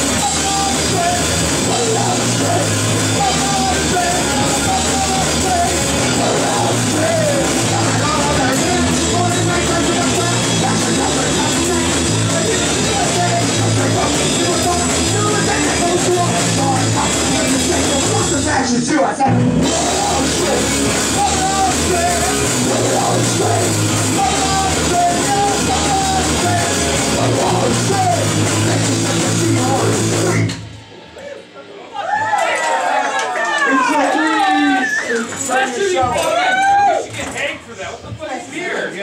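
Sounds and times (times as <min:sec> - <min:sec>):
person singing into microphone: 0:00.0 - 0:30.4
punk rock band playing: 0:00.0 - 0:31.2.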